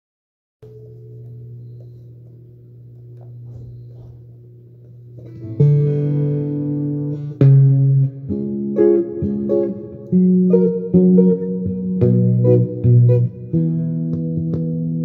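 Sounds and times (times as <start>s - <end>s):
electric guitar low note: 0.6s - 15.0s
loud electric guitar chords: 5.2s - 15.0s.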